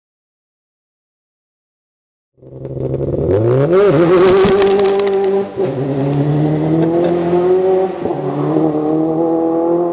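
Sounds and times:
car engine revving hard: 0:05.1 - 0:09.9.

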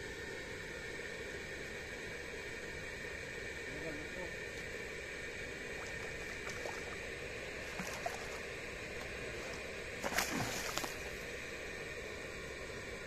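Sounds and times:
fish splashing in water: 0:05.6 - 0:11.2.

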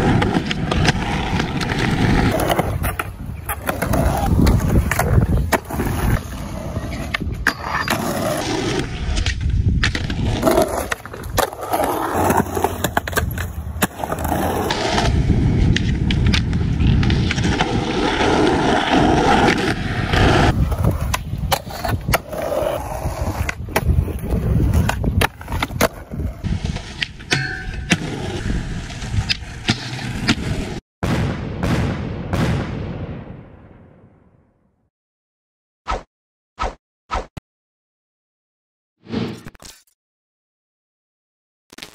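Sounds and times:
skateboard popping and landing: 0:00.0 - 0:30.8
skateboard wheels rolling on concrete: 0:00.0 - 0:30.8.

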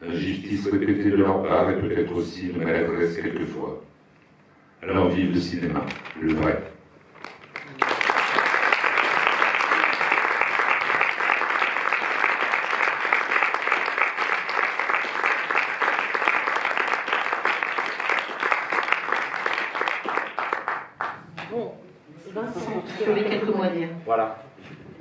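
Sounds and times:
audience applauding: 0:07.2 - 0:21.2.

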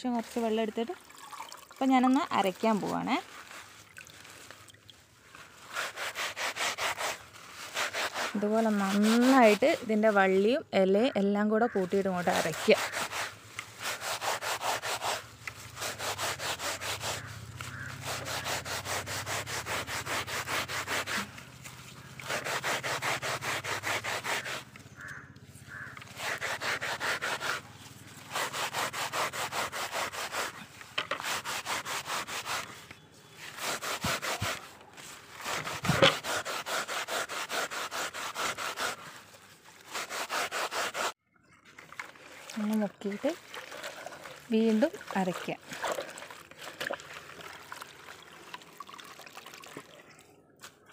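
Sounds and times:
leaves ground on stone slab: 0:02.0 - 0:10.3, 0:11.9 - 0:41.2.

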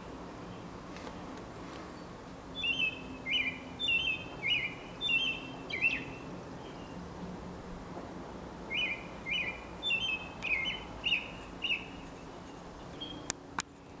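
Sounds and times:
robin singing whistled notes: 0:02.0 - 0:07.0, 0:08.7 - 0:12.0, 0:12.8 - 0:13.3.

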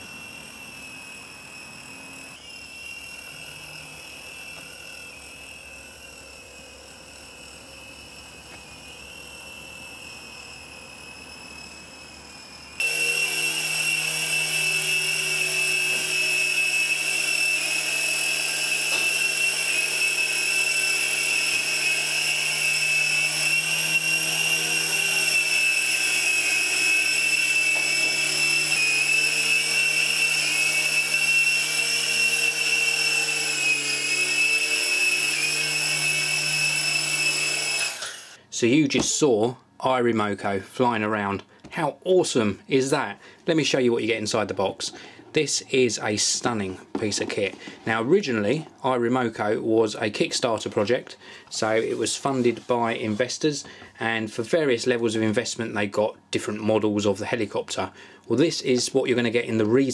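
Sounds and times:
toy helicopter motor whine: 0:00.0 - 0:38.5.

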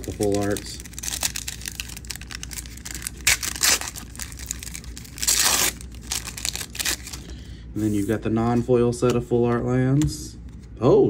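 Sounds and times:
wrapper ripping: 0:00.0 - 0:07.2
paper wrapper crinkling: 0:00.0 - 0:07.3.

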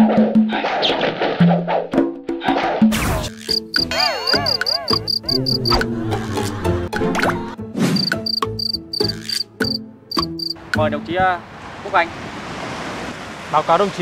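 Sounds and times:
light comedic music: 0:01.7 - 0:11.0
cricket chirps: 0:03.3 - 0:05.8, 0:08.0 - 0:10.6
wobbling warbling tone: 0:03.3 - 0:05.9.

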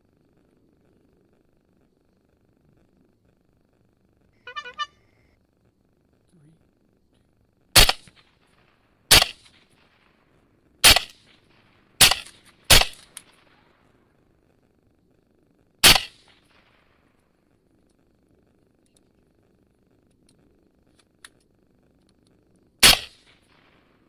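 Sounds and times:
rifle shots: 0:07.7 - 0:10.2, 0:10.8 - 0:13.8, 0:15.8 - 0:17.0, 0:22.8 - 0:24.0.

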